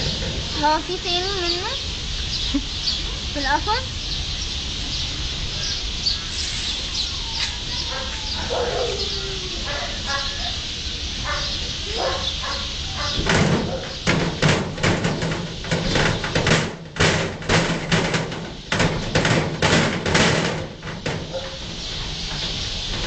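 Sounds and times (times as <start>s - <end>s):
metal cage bars clanging: 12.0s - 23.0s.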